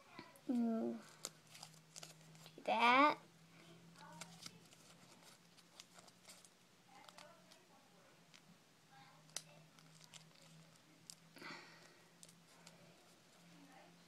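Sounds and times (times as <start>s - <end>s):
low steady hum: 0.0s - 14.0s
paper crinkling and clicking: 1.0s - 2.6s, 4.0s - 7.6s, 9.3s - 11.2s.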